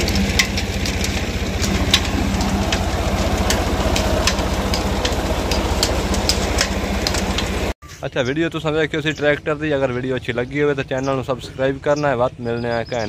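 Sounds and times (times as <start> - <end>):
tractor diesel engine running: 0.0 - 7.8.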